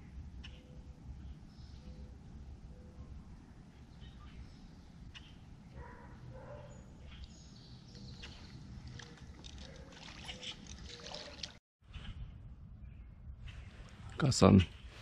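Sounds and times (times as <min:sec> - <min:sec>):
water lapping against hull: 0:08.2 - 0:11.6
wind rumbling on microphone: 0:11.8 - 0:15.0.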